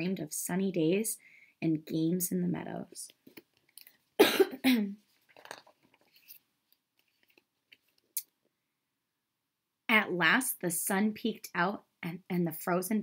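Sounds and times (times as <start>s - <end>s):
woman coughing: 4.2s - 5.0s
book pages turning: 5.2s - 8.2s.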